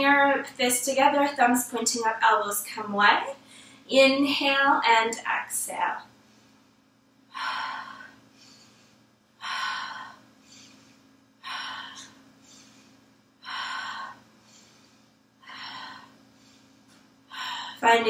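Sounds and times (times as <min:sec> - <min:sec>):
woman breathing rhythmically: 0:03.4 - 0:03.9, 0:06.0 - 0:18.0.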